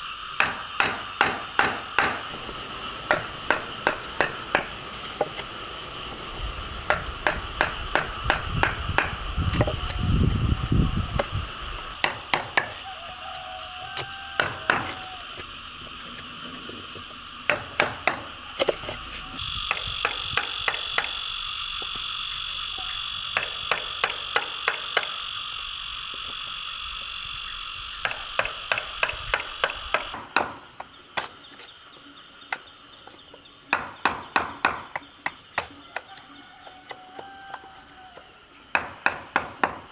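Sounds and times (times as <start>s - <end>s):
mallet striking wood chisel: 0.4s - 2.2s, 3.1s - 4.7s, 6.9s - 9.7s
high-pitched background drone: 18.3s - 30.2s.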